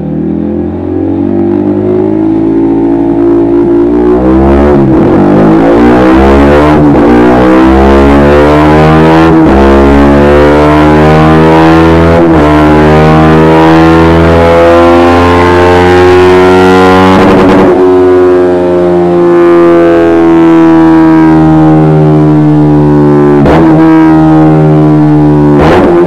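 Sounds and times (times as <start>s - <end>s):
motorcycle engine accelerating: 0.0s - 26.0s.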